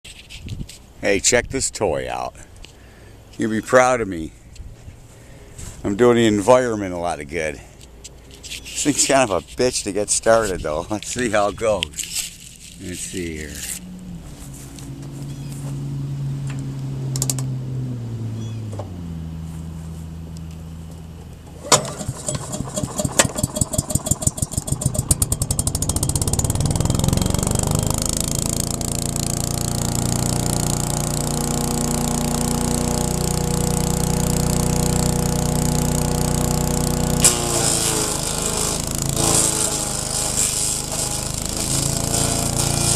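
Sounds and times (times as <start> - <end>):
small gasoline engine running: 21.5 - 42.9
sharp crack: 36.7 - 42.9.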